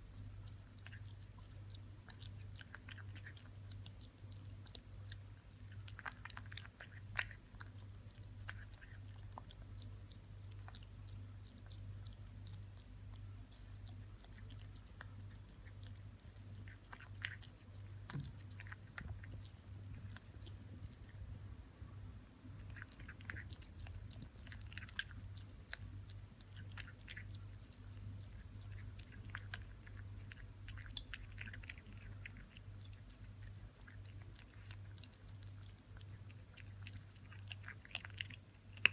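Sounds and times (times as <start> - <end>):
cat chewing wet meat: 0.0 - 21.5, 22.4 - 38.9
low hum: 6.8 - 33.6.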